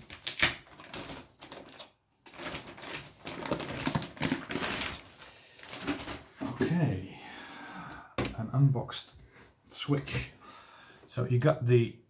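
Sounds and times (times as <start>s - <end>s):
plastic wrapping crinkling: 0.0s - 6.6s.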